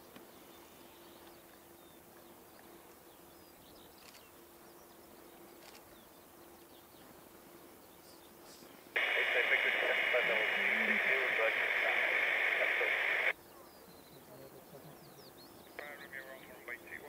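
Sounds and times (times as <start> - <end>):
faint steady hum: 5.0 - 13.3.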